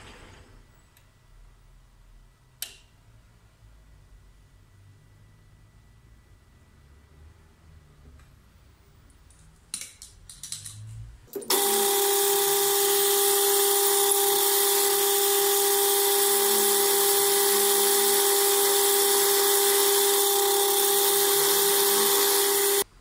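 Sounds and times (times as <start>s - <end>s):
metal lathe whining: 11.5s - 22.8s.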